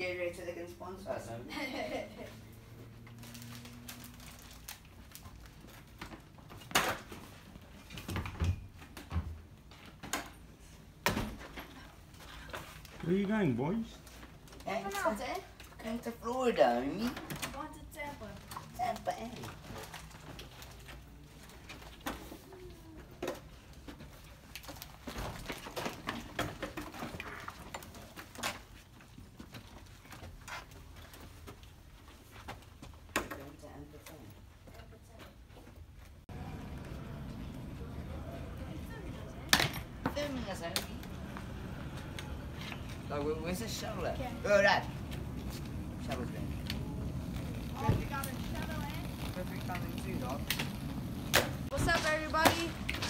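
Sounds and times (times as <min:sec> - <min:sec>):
bags rustling: 0:03.0 - 0:06.6
footsteps: 0:34.6 - 0:53.0
low room hum: 0:36.3 - 0:53.0.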